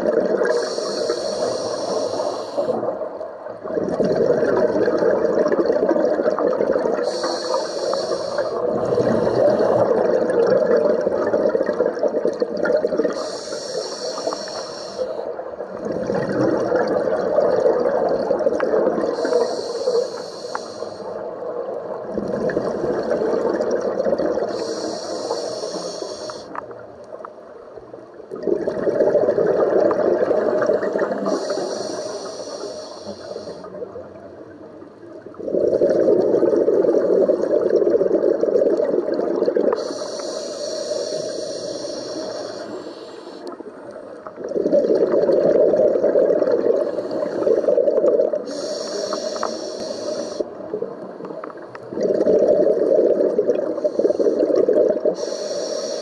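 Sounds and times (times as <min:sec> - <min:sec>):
exhaled bubbles rushing: 0:00.0 - 0:00.7, 0:02.7 - 0:07.2, 0:08.4 - 0:13.2, 0:15.4 - 0:19.4, 0:21.2 - 0:24.7, 0:28.3 - 0:31.6, 0:35.2 - 0:40.0, 0:44.2 - 0:48.5, 0:50.5 - 0:55.2
regulator inhale hiss: 0:00.4 - 0:03.0, 0:07.0 - 0:10.0, 0:13.1 - 0:15.4, 0:19.1 - 0:21.3, 0:24.4 - 0:26.7, 0:30.8 - 0:33.8, 0:39.7 - 0:44.0, 0:46.7 - 0:50.6, 0:53.6 - 0:56.0.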